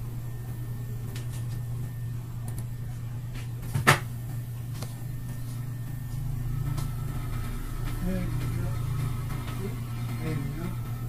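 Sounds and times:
steady low hum: 0:00.0 - 0:11.0.

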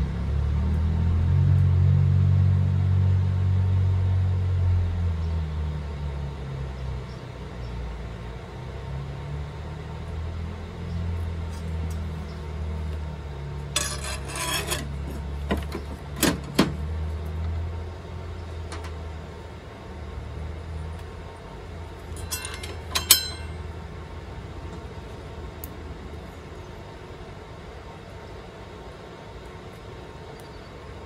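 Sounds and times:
low hum: 0:19.3 - 0:26.7
saw blade metal clinks: 0:22.2 - 0:23.7.

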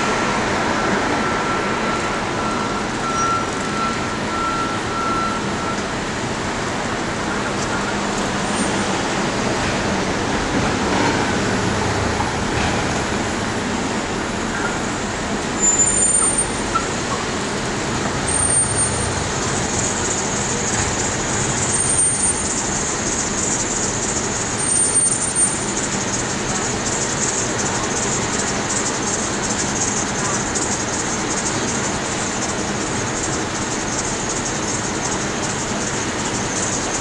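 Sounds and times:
city street traffic: 0:00.0 - 0:37.0
vehicles passing: 0:05.5 - 0:31.2.

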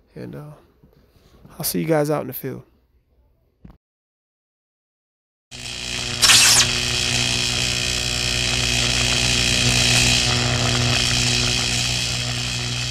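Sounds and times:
electrical arc buzz: 0:05.5 - 0:12.9
low hum: 0:05.6 - 0:12.9
sharp electric zap: 0:05.7 - 0:12.9.

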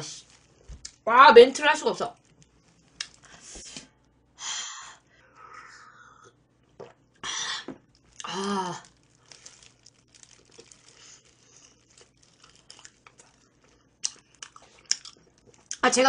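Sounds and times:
plastic glove crinkling: 0:00.0 - 0:03.8, 0:07.8 - 0:16.0
biting and chewing: 0:07.8 - 0:15.8
person crying out: 0:08.2 - 0:08.8.

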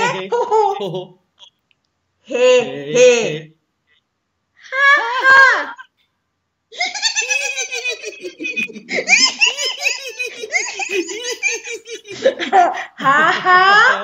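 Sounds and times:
man and woman laughing: 0:06.8 - 0:14.0.

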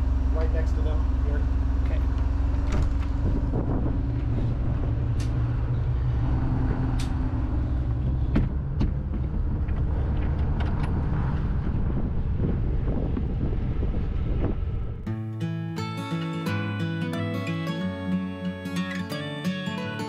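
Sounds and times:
boat engine droning: 0:00.0 - 0:15.1
sharp clicks and knocks: 0:07.9 - 0:11.5.

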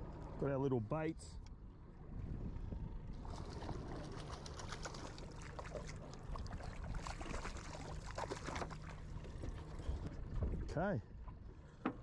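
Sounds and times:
low steady hum: 0:00.0 - 0:12.0
fish thrashing and splashing water: 0:03.2 - 0:09.8.

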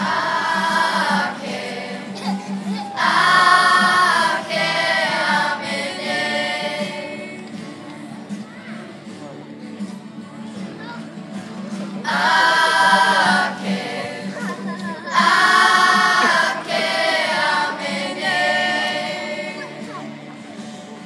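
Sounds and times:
children singing together: 0:00.0 - 0:07.7, 0:12.0 - 0:20.2.

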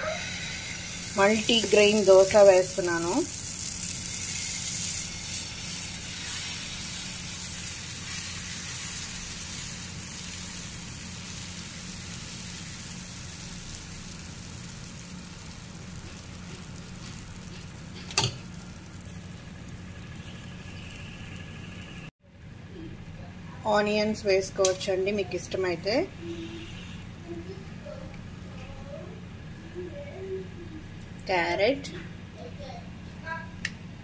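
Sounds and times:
batter sizzling on hot griddle: 0:00.0 - 0:22.1.

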